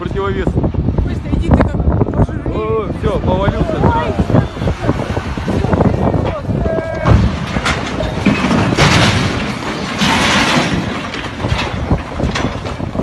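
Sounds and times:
crane toppling with crashing: 3.8s - 13.0s.

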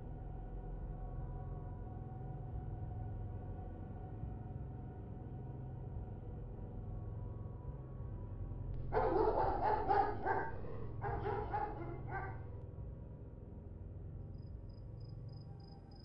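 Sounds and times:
dog barking: 8.8s - 12.6s
steady low hum: 8.8s - 16.0s.

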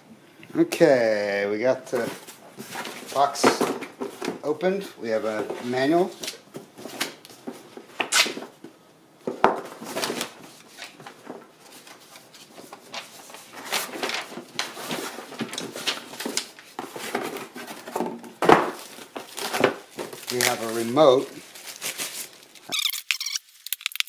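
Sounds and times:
paper rustling: 1.9s - 4.5s, 9.6s - 23.6s
cardboard packaging scraping: 9.6s - 23.6s.

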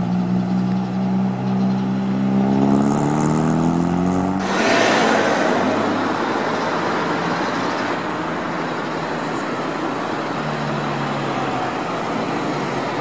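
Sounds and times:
car engine low hum: 0.0s - 13.0s
car passing close by: 2.1s - 8.9s
hiss of road traffic: 4.4s - 13.0s.

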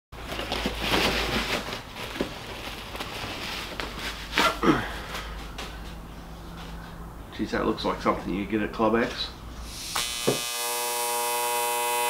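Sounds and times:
plastic wrapping crinkling: 0.2s - 4.6s.

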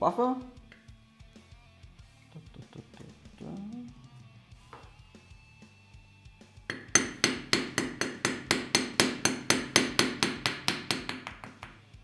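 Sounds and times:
hammer tapping on pin punch: 6.7s - 11.8s.

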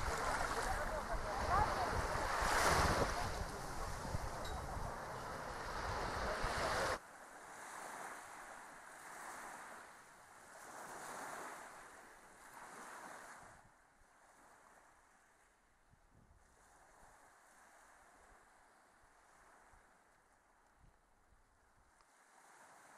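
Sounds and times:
wind buffeting microphone: 0.0s - 7.0s
faint wind: 0.0s - 22.9s.

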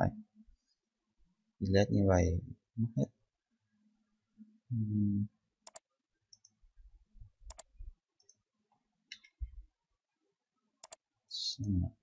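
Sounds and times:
mouse button clicks: 7.5s - 8.4s.

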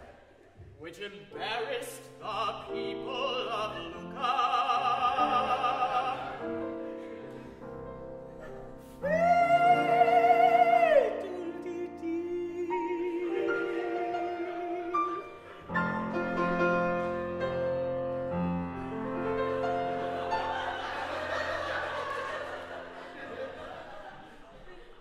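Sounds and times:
grand piano: 0.0s - 25.0s
man singing with vibrato: 0.9s - 6.5s, 9.0s - 15.5s.

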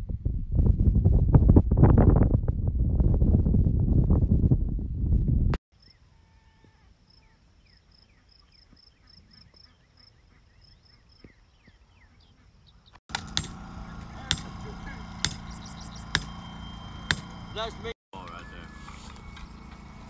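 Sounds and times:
wind buffeting microphone: 0.0s - 5.6s
birds chirping: 7.2s - 20.0s
hammer blows on stakes: 13.1s - 20.0s
low hum: 13.1s - 20.0s.

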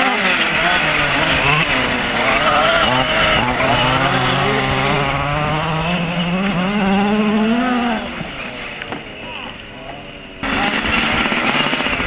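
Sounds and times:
small two-stroke engine revving: 0.0s - 12.0s.

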